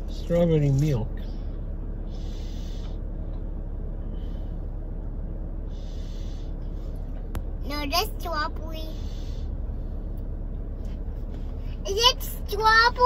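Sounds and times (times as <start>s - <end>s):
car cabin rumble: 0.0s - 13.0s
breathy hisses: 2.0s - 3.1s, 5.6s - 6.6s.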